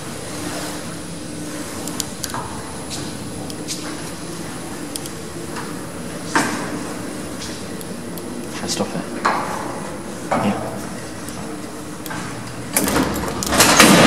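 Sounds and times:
lift mechanical hum: 0:00.0 - 0:14.0
light clicks and ticks: 0:04.8 - 0:05.7.

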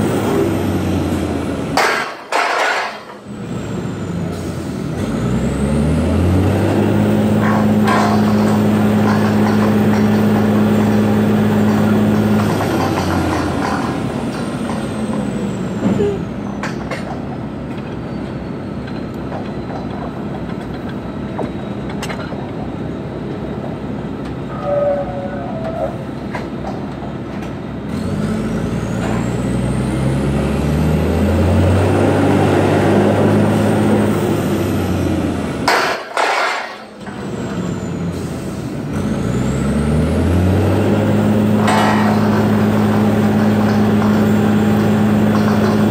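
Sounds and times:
rig engine revving: 0:04.9 - 0:15.8, 0:27.9 - 0:35.6, 0:37.0 - 0:45.9.

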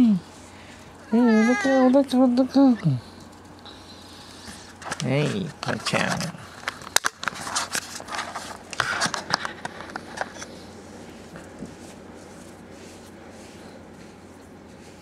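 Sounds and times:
hand stroking cat fur: 0:09.6 - 0:15.0.

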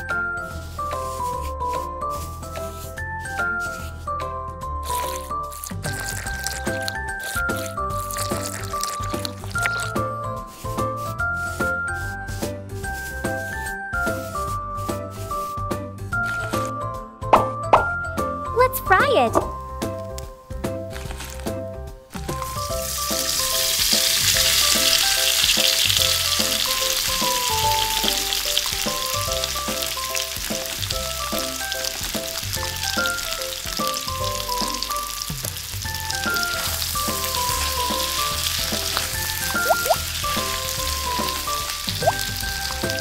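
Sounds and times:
food deep-frying in oil: 0:04.8 - 0:10.8, 0:20.9 - 0:43.0.

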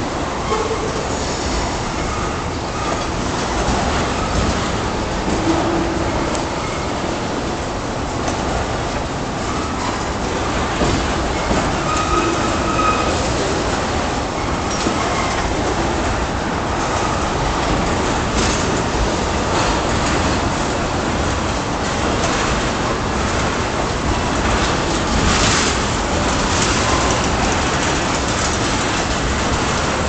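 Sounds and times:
freight train rumbling past: 0:00.0 - 0:30.0
high wheel squeals: 0:11.4 - 0:13.7.

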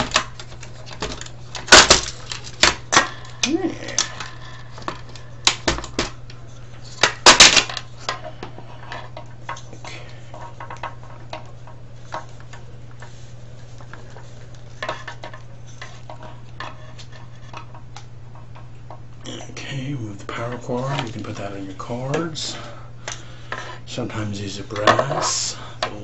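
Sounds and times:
steady low hum: 0:00.0 - 0:26.0.

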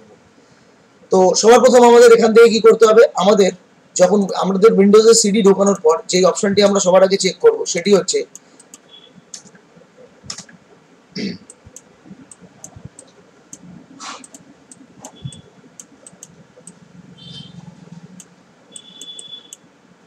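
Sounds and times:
computer mouse clicking: 0:08.3 - 0:09.6, 0:10.3 - 0:10.6, 0:11.5 - 0:16.8, 0:18.2 - 0:19.7.

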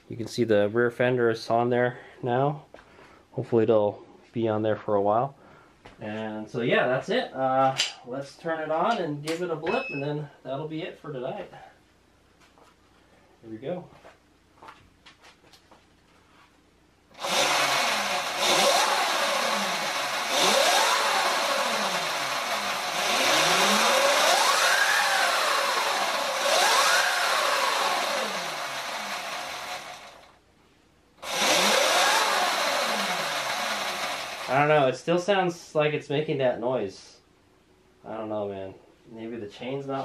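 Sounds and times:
electric motor whine: 0:17.2 - 0:30.2, 0:31.2 - 0:34.5.

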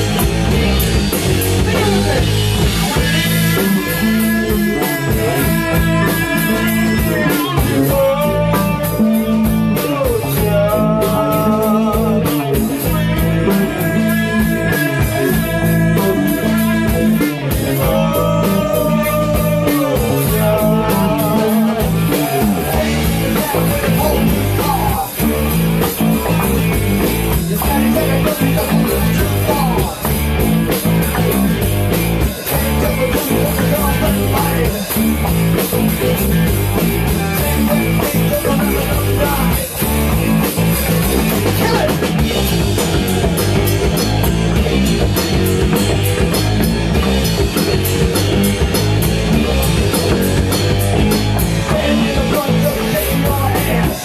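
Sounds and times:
drum kit: 0:00.0 - 0:54.0
electric guitar: 0:00.0 - 0:54.0
person singing long notes: 0:01.7 - 0:25.3.

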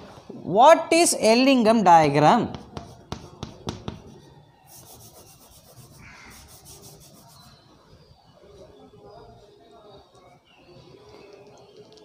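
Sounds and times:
chalk tapping on blackboard: 0:02.5 - 0:07.5
chalk scratching on blackboard: 0:02.6 - 0:07.7.

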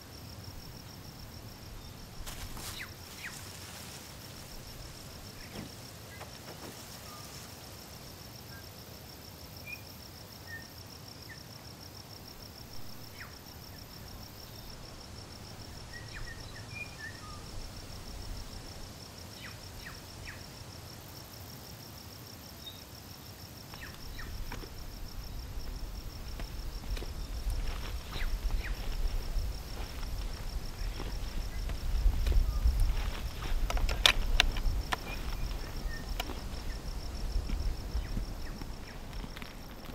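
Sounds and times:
insect trill: 0:00.0 - 0:39.9
wind buffeting microphone: 0:24.0 - 0:39.9.

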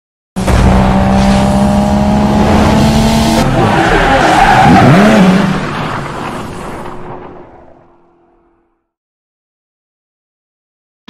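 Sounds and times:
race car engine: 0:00.4 - 0:08.7
tire squeal: 0:03.4 - 0:05.6.

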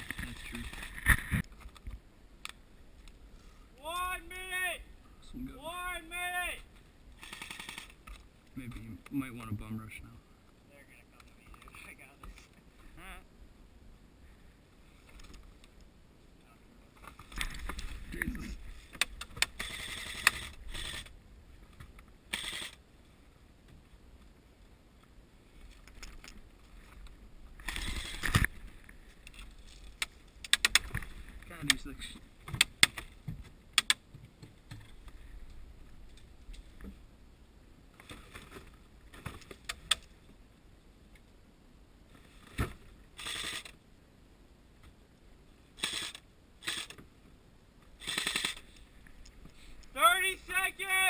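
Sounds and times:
airsoft rifle full-auto bursts: 0:07.2 - 0:08.0, 0:19.5 - 0:21.1, 0:22.3 - 0:22.8, 0:43.2 - 0:43.7, 0:45.8 - 0:47.0, 0:48.0 - 0:48.6.

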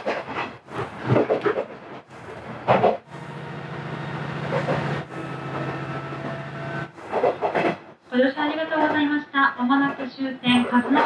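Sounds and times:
train running noise bursts: 0:00.0 - 0:11.0
diesel engine drone: 0:02.1 - 0:07.6.

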